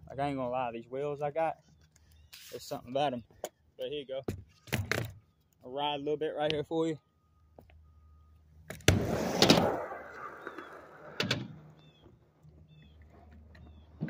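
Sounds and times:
skateboard wheels rolling on concrete: 8.7s - 14.0s.

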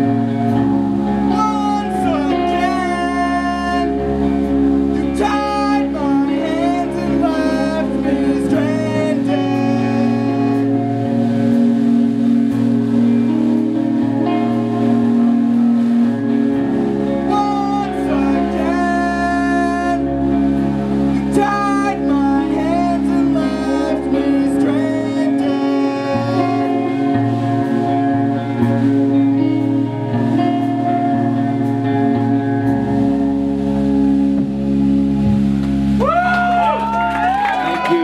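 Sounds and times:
guitar: 0.0s - 38.0s
low bass notes: 0.0s - 38.0s
person singing: 1.2s - 4.3s, 5.0s - 11.2s, 17.1s - 20.2s, 21.1s - 28.0s.

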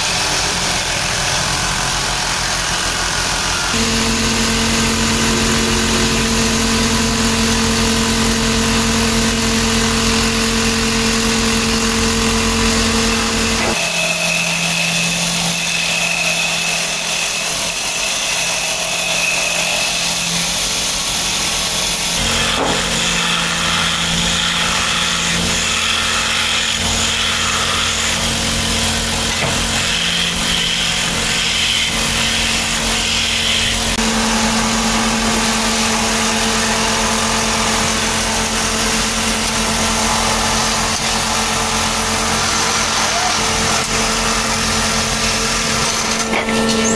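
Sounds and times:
lathe motor running: 0.0s - 46.9s
sanding on spinning wood: 11.9s - 46.1s.

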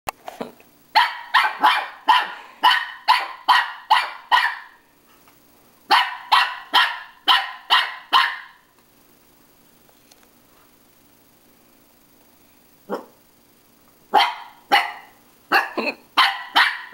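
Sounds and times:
small dog barking: 0.9s - 4.8s, 5.9s - 8.6s, 12.9s - 13.2s, 14.1s - 16.9s.

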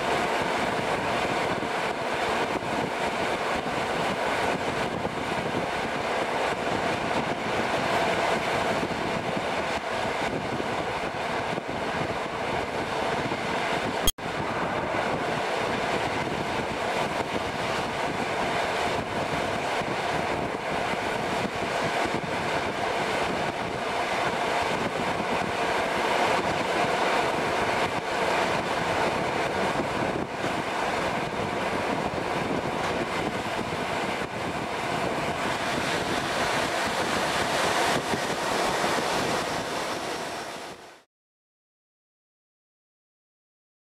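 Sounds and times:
train wheels rumbling on rail: 0.0s - 41.0s
rush of passing air: 23.7s - 41.1s.

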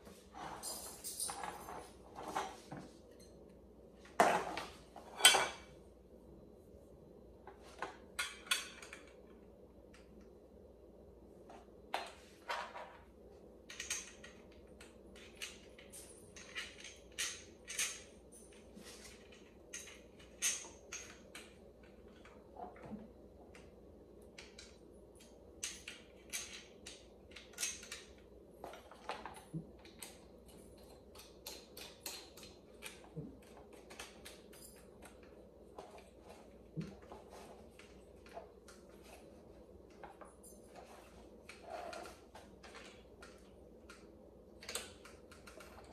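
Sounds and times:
metal tubes clinking: 0.4s - 1.9s.

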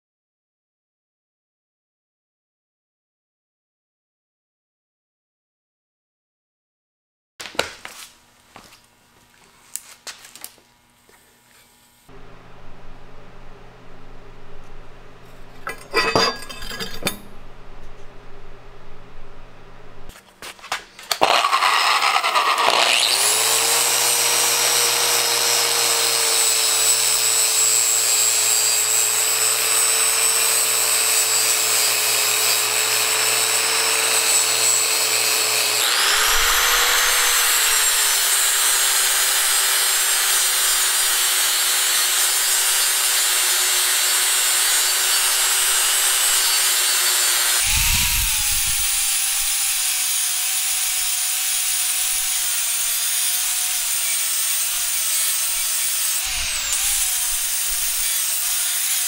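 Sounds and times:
power tool motor whine: 21.1s - 59.0s.

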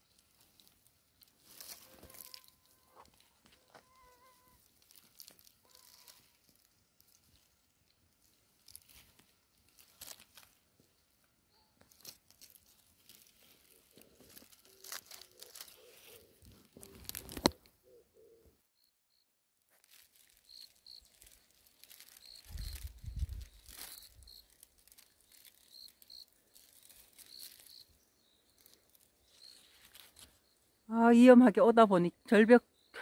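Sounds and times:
dry leaf litter rustling: 0.0s - 17.6s, 19.7s - 30.4s
small bird chirping: 20.2s - 30.9s.

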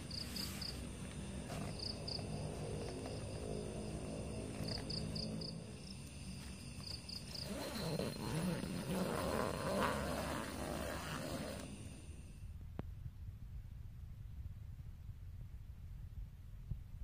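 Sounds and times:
crickets chirping: 0.0s - 12.6s
steady low hum: 0.0s - 17.0s.

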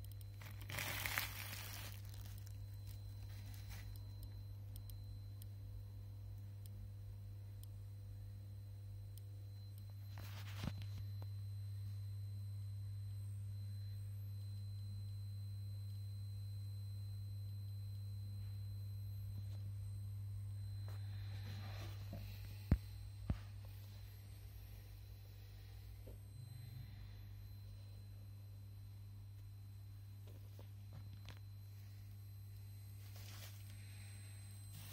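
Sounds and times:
geiger counter clicking: 0.0s - 0.4s, 3.8s - 5.6s
low electrical hum: 0.0s - 34.9s.

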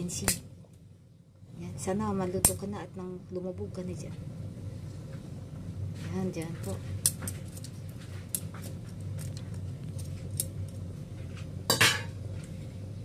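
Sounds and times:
steady low hum: 0.0s - 13.0s
kitchenware clatter: 11.7s - 12.2s
kitchenware clinking: 11.7s - 12.2s.

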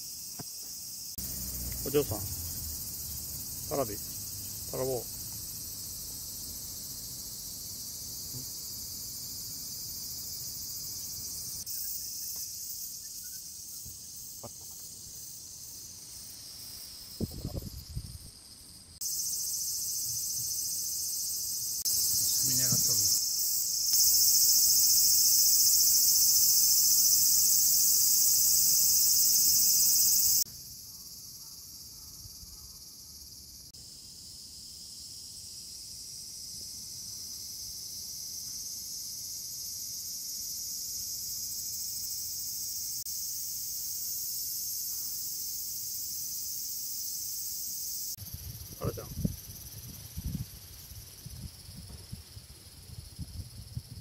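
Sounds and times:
insect chorus shrilling: 0.0s - 54.0s
brief thump: 51.8s - 52.2s.

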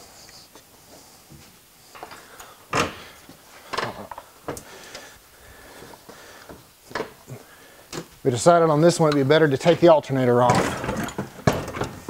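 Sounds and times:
metal knocks and clanks: 10.4s - 12.0s.

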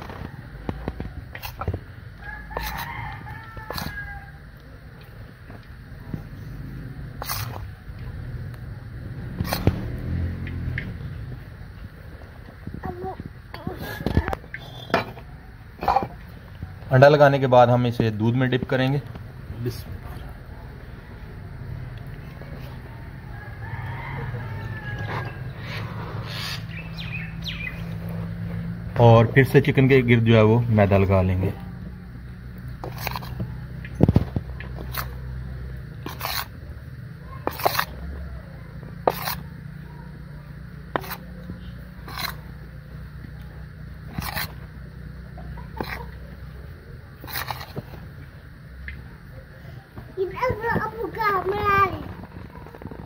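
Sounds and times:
steady low hum: 0.0s - 53.0s
rooster crowing: 2.2s - 4.6s, 22.8s - 28.5s, 37.3s - 40.0s
hands rubbing chicken in flour: 2.6s - 2.8s, 37.4s - 37.9s.

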